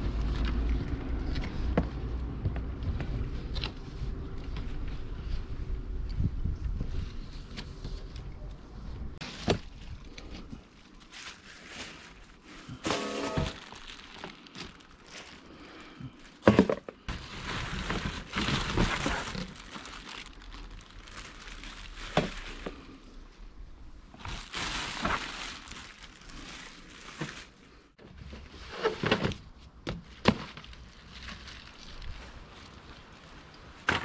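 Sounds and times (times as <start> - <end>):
plastic wrapping rustling: 9.2 - 23.1, 24.0 - 28.7, 30.0 - 34.0.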